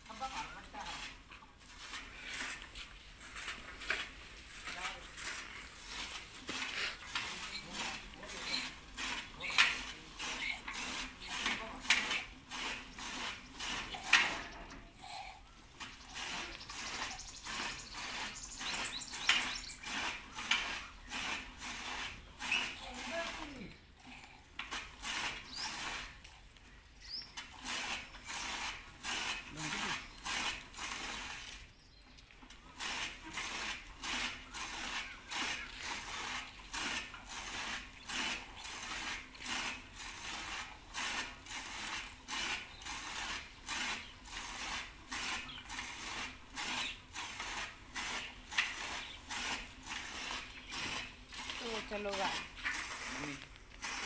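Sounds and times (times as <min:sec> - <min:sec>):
milk squirting into steel tumbler: 0:24.1 - 0:54.0.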